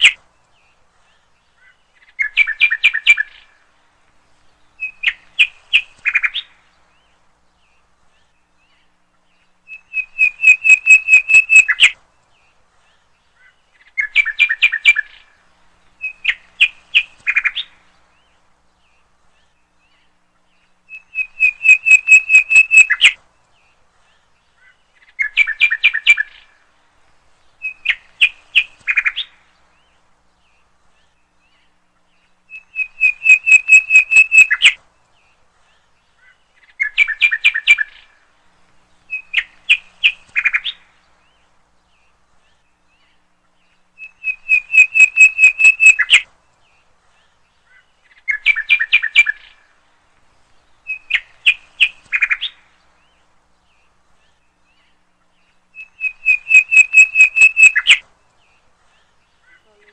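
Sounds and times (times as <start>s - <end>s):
bird chirping in trills: 0.0s - 3.8s, 4.4s - 26.7s, 27.4s - 59.9s.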